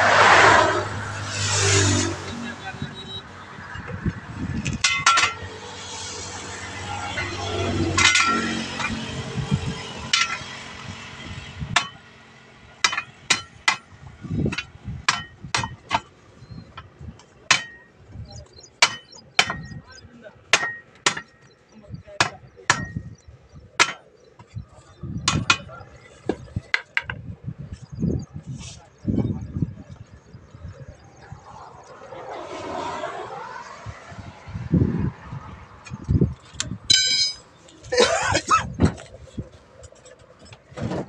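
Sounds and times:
rushing noise: 0:00.0 - 0:04.8
hammer clanking on steel rim: 0:08.0 - 0:09.0, 0:18.8 - 0:19.8, 0:36.9 - 0:37.5.

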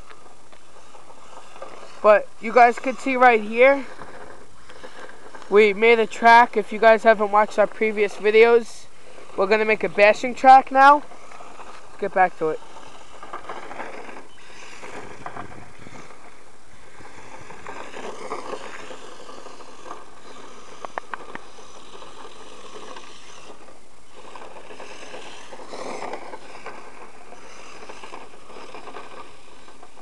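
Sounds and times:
electric motor whining: 0:00.0 - 0:30.0.

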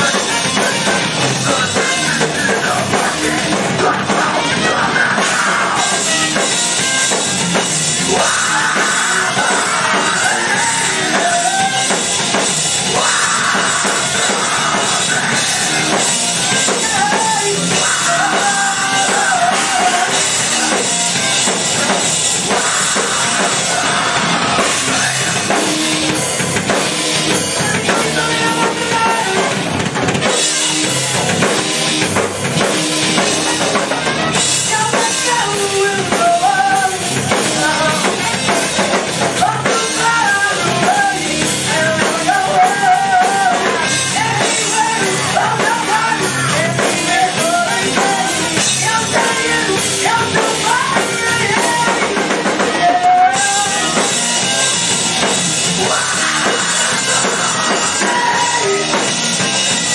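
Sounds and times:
man singing into a microphone: 0:00.0 - 0:06.5, 0:08.1 - 0:12.1, 0:12.9 - 0:20.7, 0:27.6 - 0:29.6, 0:34.6 - 0:38.6, 0:39.3 - 0:54.2, 0:55.8 - 0:59.0
bass guitar: 0:00.0 - 0:59.9
drum kit: 0:00.0 - 0:59.9
electric guitar: 0:00.0 - 0:59.9.

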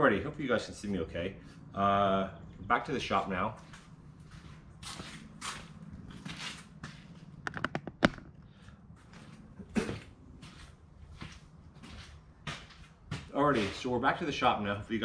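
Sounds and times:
footsteps: 0:03.6 - 0:08.3, 0:08.9 - 0:13.9.

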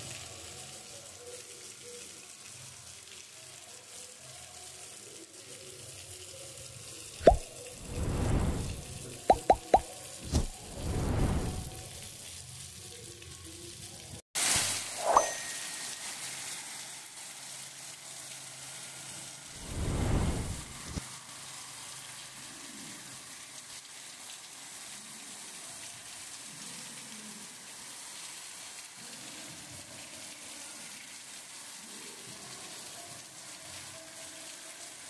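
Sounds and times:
water running across street: 0:00.0 - 0:35.0
heavy rain falling: 0:07.3 - 0:09.2, 0:09.8 - 0:12.5, 0:15.6 - 0:22.3.

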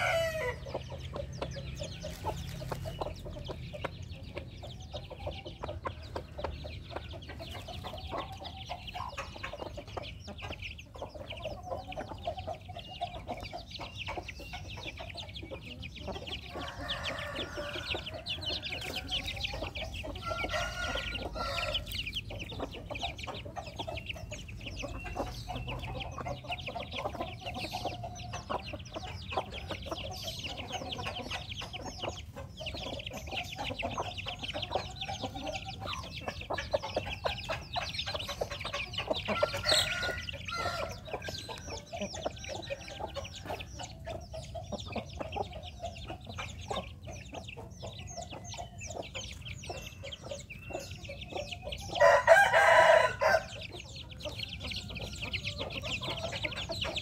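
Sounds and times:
rooster crowing: 0:00.0 - 0:00.6, 0:16.7 - 0:19.1, 0:20.2 - 0:21.9, 0:52.0 - 0:53.5
chicks peeping: 0:00.0 - 0:57.0
hens clucking: 0:00.0 - 0:57.0.

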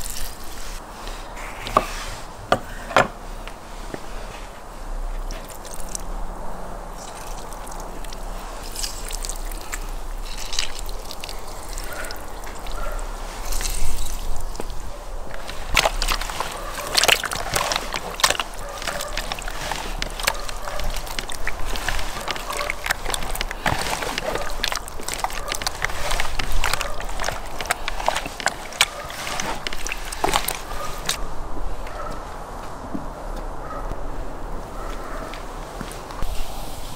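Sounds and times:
hands squelching wet fish: 0:00.0 - 0:01.4, 0:05.2 - 0:06.2, 0:07.0 - 0:31.2
juice dripping: 0:05.2 - 0:06.1, 0:06.9 - 0:31.2.

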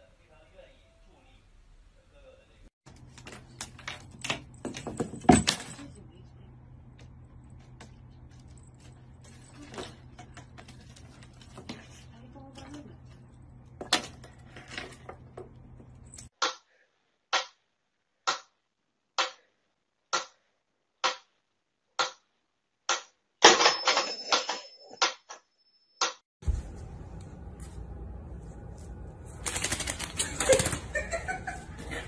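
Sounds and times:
low room hum: 0:00.0 - 0:16.3, 0:26.4 - 0:32.0.

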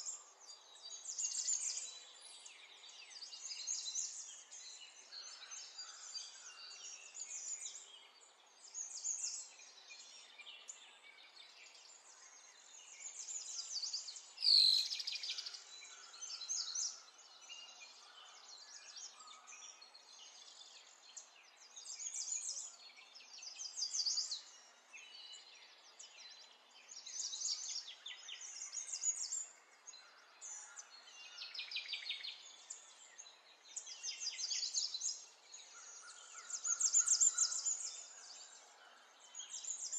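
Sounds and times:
birds chirping and singing: 0:08.6 - 0:39.9.

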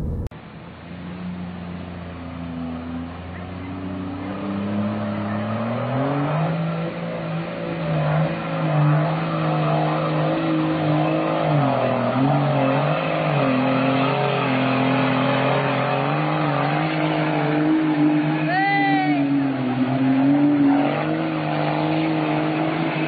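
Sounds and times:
truck engine revving under load: 0:00.0 - 0:00.3.

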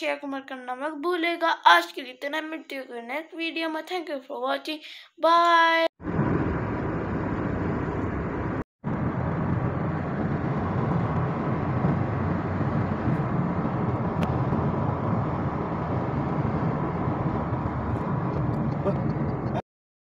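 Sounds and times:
car road noise inside cabin: 0:06.1 - 0:19.6.

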